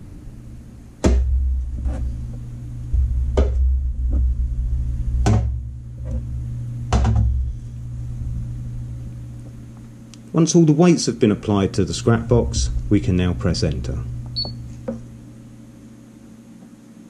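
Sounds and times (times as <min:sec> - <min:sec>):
low rumble: 0:00.0 - 0:10.0, 0:12.0 - 0:15.6
irregular knocks and thuds: 0:01.0 - 0:02.1, 0:02.9 - 0:04.4, 0:05.2 - 0:06.2, 0:06.9 - 0:07.4.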